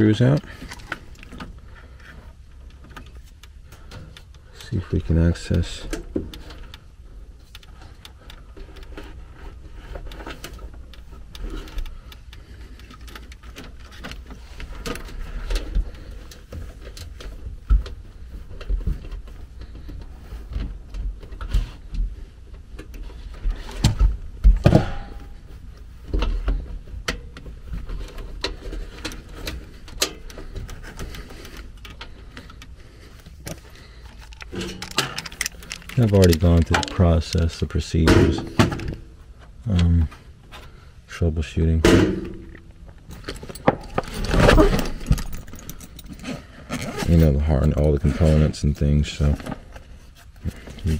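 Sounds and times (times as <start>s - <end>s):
metal clicks knocks and scrapes: 26.1s - 39.1s
metal housing clunks: 38.0s - 39.1s, 41.8s - 45.8s.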